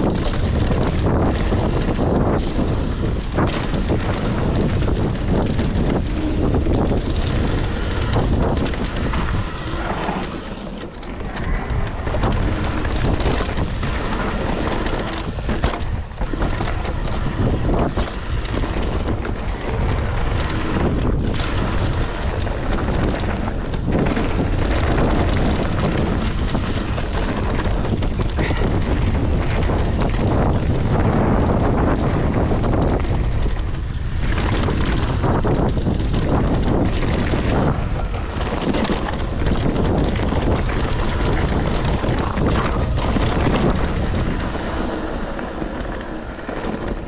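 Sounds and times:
mountain bike rumble and clatter: 0.0 - 47.0
wind buffeting microphone: 0.0 - 47.0.

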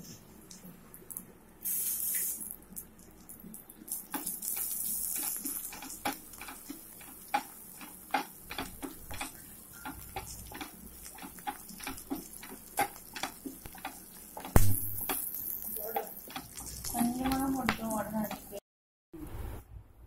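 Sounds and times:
oil sizzling: 1.1 - 18.6
spatula scraping frying pan: 4.6 - 18.6.

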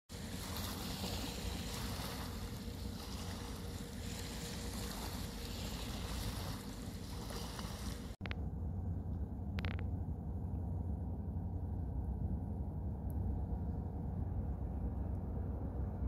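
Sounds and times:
small waves lapping on shingle: 0.1 - 8.2
low rumble: 0.1 - 16.0.

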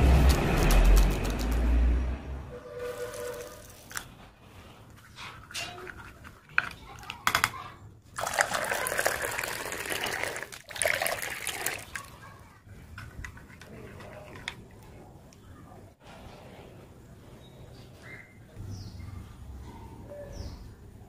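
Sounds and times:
liquid pouring into mug: 8.2 - 12.2.

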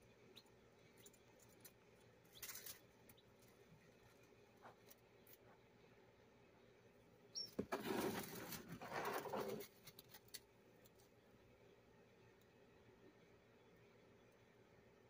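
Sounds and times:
chick peeping: 0.3 - 3.6, 7.3 - 7.6.

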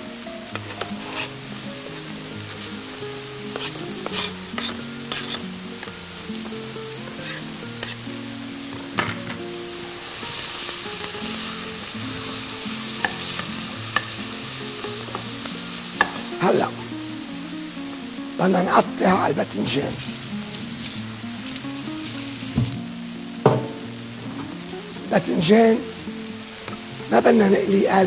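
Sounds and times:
onion sizzling in oil: 0.0 - 28.0
wooden spoon stirring pot: 0.5 - 1.4, 3.5 - 5.4, 7.2 - 8.0.

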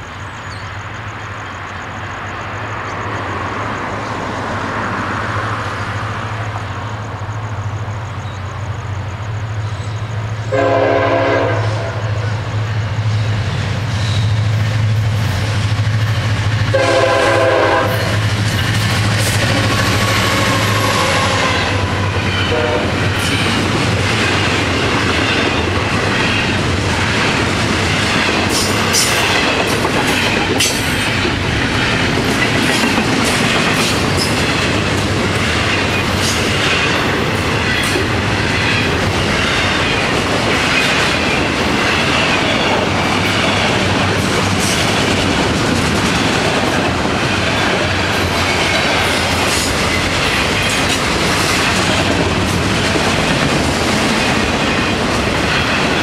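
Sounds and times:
diesel locomotive engine drone: 0.0 - 56.0
train wheels clacking over rail joints: 13.4 - 56.0.

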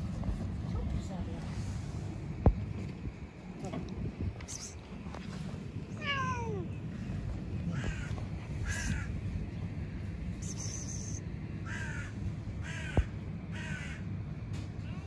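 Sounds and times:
crow cawing: 7.7 - 9.2, 11.6 - 14.1.

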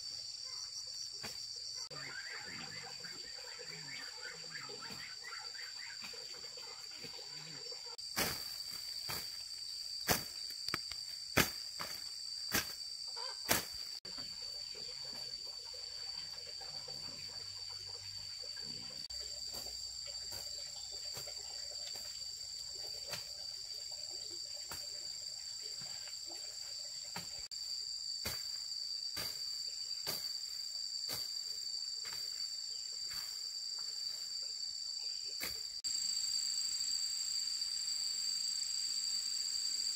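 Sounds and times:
insects shrilling: 0.0 - 14.7.

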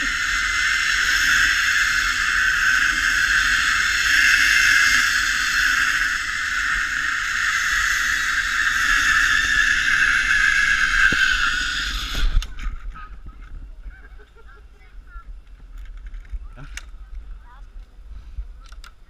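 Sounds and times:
zipline pulleys whirring on cable: 0.0 - 14.4.

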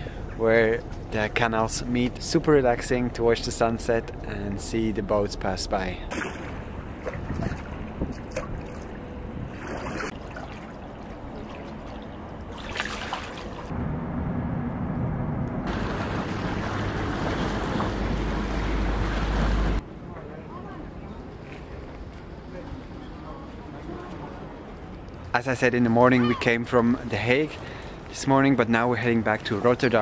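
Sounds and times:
water lapping against stone steps: 6.1 - 13.7
wind buffeting microphone: 6.6 - 10.2
ferry passing low rumble: 13.6 - 19.8.

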